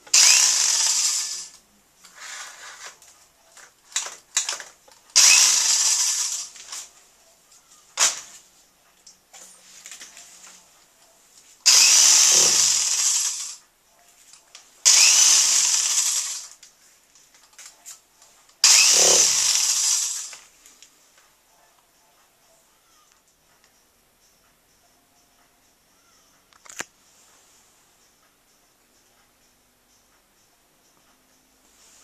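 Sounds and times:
power drill running: 0:00.1 - 0:01.6, 0:05.1 - 0:06.6, 0:11.6 - 0:13.6, 0:14.8 - 0:16.6, 0:18.6 - 0:20.4.

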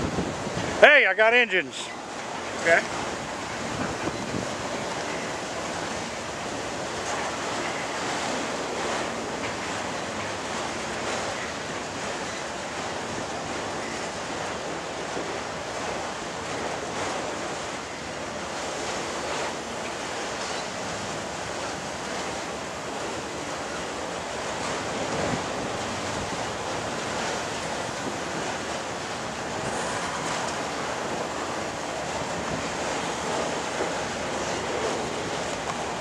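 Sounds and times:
freight train rolling past: 0:17.2 - 0:36.0.

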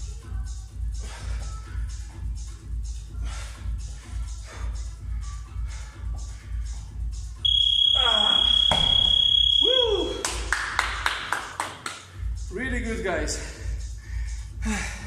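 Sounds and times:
workout music with steady beat: 0:00.0 - 0:15.0
long high beep from timer: 0:07.4 - 0:10.2
medicine ball thudding on floor: 0:08.6 - 0:09.1
hand claps: 0:10.0 - 0:12.1.

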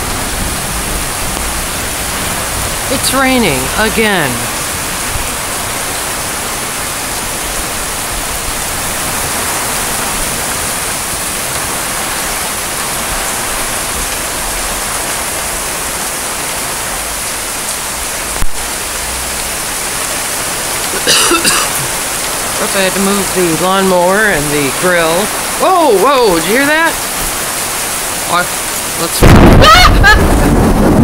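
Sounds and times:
heavy rain pouring: 0:00.0 - 0:31.0.

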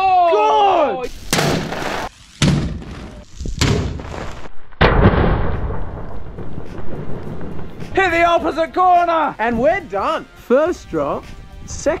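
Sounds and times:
man yelling: 0:00.0 - 0:01.1.

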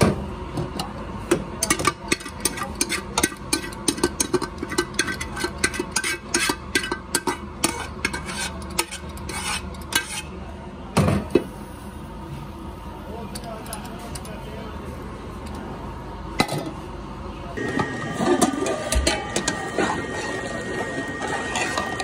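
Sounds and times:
metal spoon scraping metal pot: 0:02.1 - 0:10.4.

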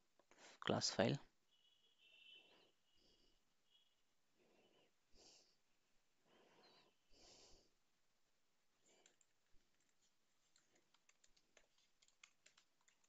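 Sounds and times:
faint keyboard typing: 0:08.8 - 0:13.0.

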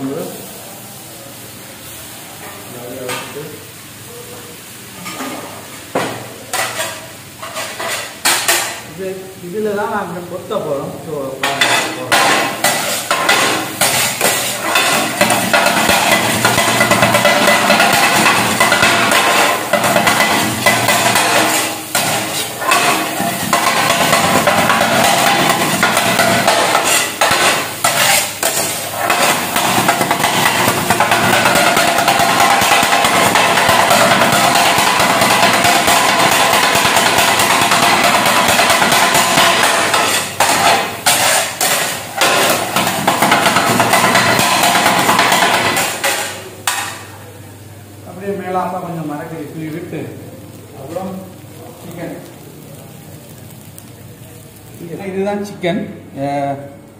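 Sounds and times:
metal blades chopping on griddle: 0:06.5 - 0:08.8, 0:11.4 - 0:47.0.

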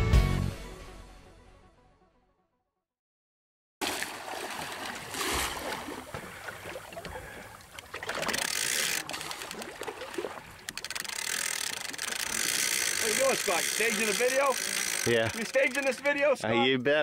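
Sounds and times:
sea water splashing: 0:03.8 - 0:16.2.

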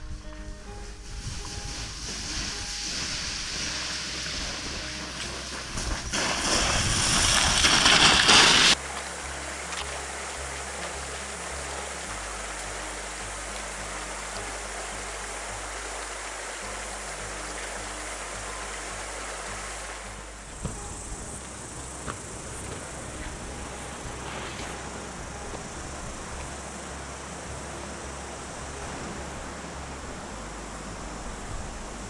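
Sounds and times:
low background music: 0:00.0 - 0:07.8, 0:08.7 - 0:32.0
rushing noise: 0:00.0 - 0:09.2
river running over rocks: 0:00.3 - 0:32.0.

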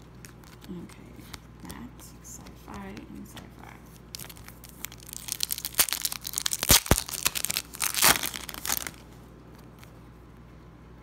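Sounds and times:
foil wrapper tearing and crinkling: 0:00.0 - 0:00.8, 0:04.1 - 0:09.0.

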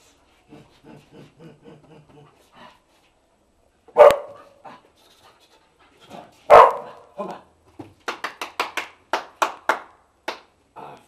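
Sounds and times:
dog barking: 0:03.9 - 0:04.6, 0:06.5 - 0:07.1.

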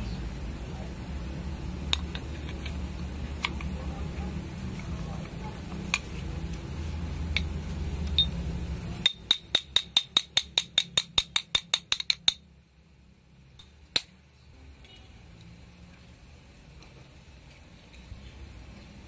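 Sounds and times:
sharp metallic clicks: 0:09.0 - 0:12.5.

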